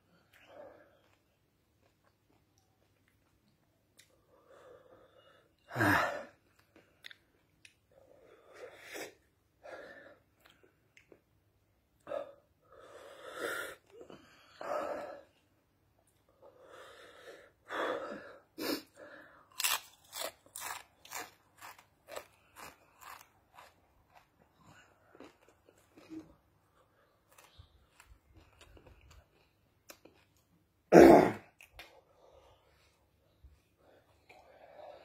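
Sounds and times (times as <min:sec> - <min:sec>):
person chewing crunchy chips: 0:19.4 - 0:30.6.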